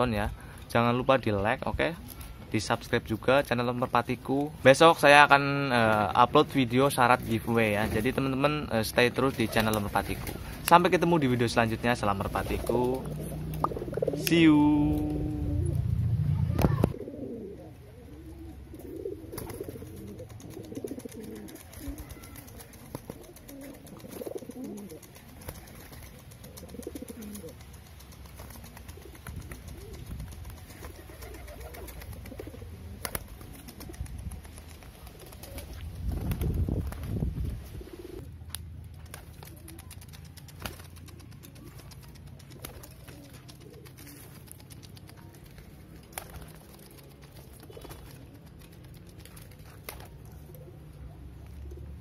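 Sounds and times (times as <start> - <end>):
pigeons cooing: 9.1 - 36.8, 37.6 - 38.3, 39.0 - 52.0.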